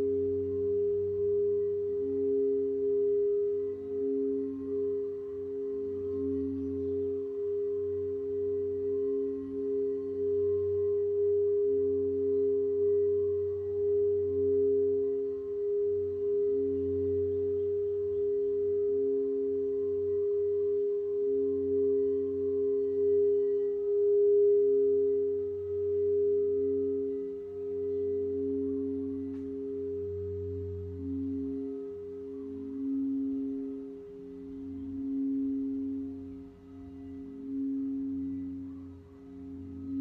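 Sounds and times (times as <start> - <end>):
singing bowls ringing: 0.0 - 40.0.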